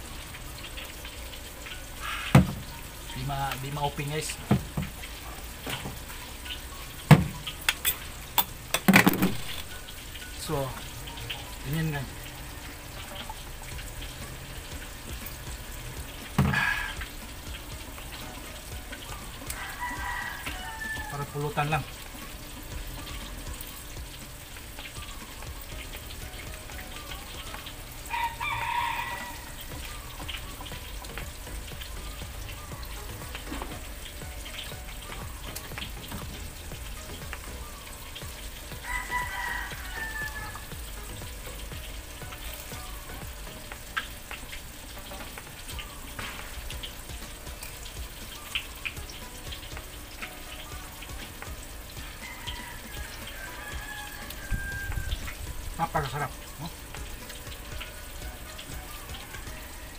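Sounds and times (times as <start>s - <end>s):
rooster crowing: 16.4s - 17.0s, 19.5s - 21.4s, 28.1s - 29.8s, 38.8s - 40.7s, 52.0s - 56.6s.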